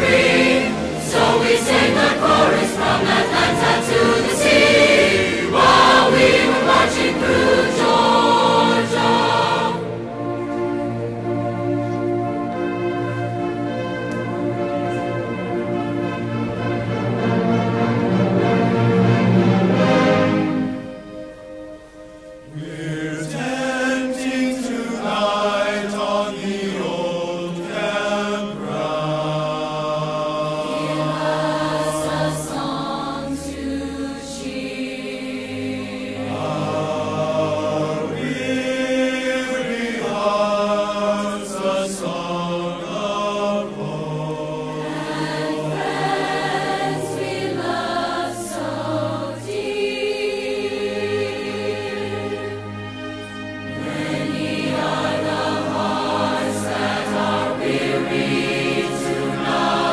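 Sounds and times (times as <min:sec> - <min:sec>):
choir singing held chords: 0:00.0 - 0:59.9.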